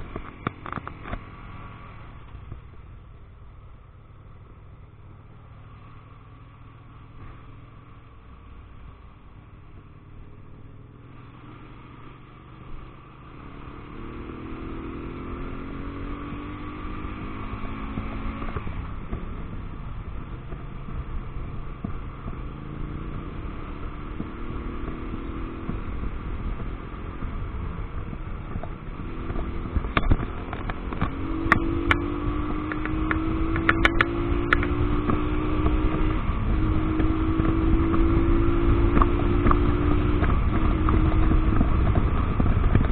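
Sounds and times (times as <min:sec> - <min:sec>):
motorcycle engine accelerating: 0:00.0 - 0:42.9
wind noise: 0:13.5 - 0:42.9.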